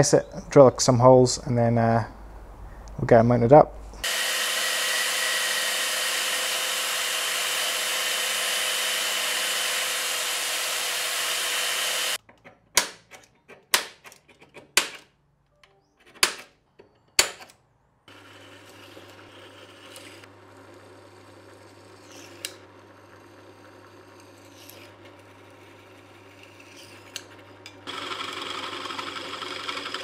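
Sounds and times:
belt sander whirring: 0:04.0 - 0:12.2, 0:18.1 - 0:30.0
drill press motor humming: 0:04.0 - 0:12.2, 0:18.1 - 0:30.0.

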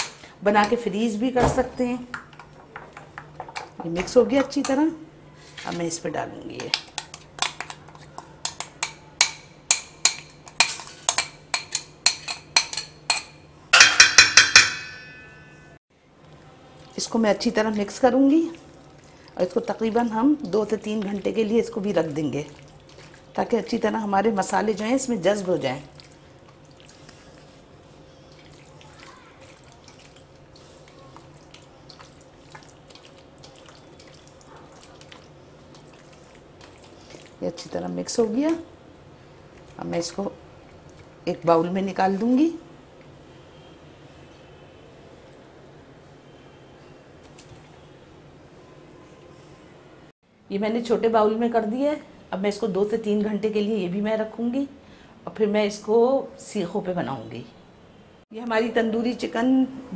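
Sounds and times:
metal spoon clinking glass bowl: 0:08.5 - 0:15.7
wet squelches of marinade: 0:16.2 - 0:45.6, 0:46.2 - 0:48.3.

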